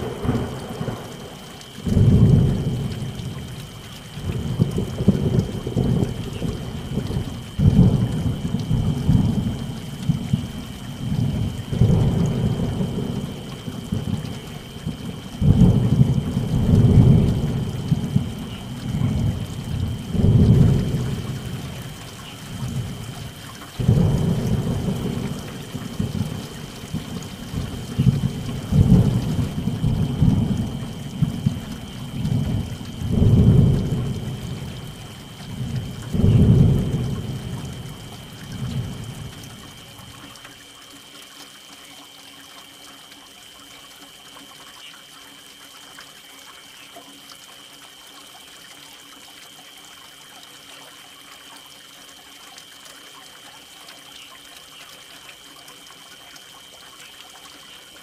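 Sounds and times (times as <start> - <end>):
thunder rumbling: 0.0 - 3.6, 4.2 - 39.8
steady rain: 0.0 - 58.0.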